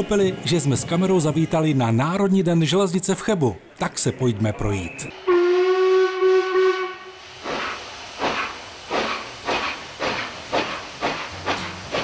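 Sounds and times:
steam locomotive whistle: 0:05.1 - 0:07.2
steam exhaust chuffing: 0:07.2 - 0:12.0.

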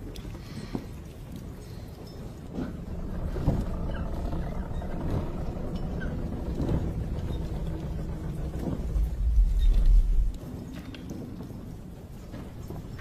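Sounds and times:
low deep rumble: 0:02.5 - 0:10.9.

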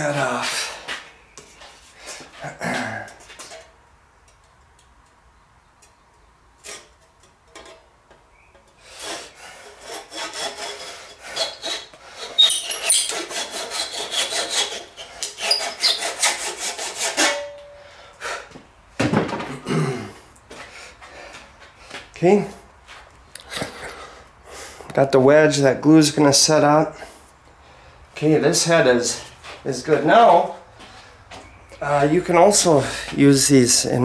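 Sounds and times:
handsaw cutting wood: 0:08.8 - 0:17.4.

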